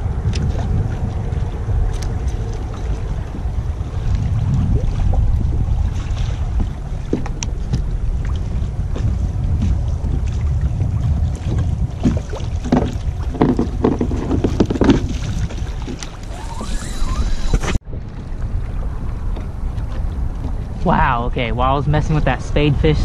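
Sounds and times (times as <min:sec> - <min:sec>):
water lapping against hull: 0:00.0 - 0:22.1
wind buffeting microphone: 0:00.0 - 0:23.0.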